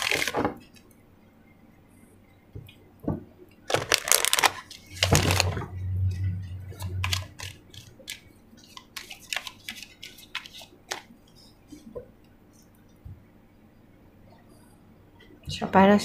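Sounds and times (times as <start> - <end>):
cards being shuffled: 0.0 - 0.7, 6.8 - 11.1
low hum: 4.8 - 8.6.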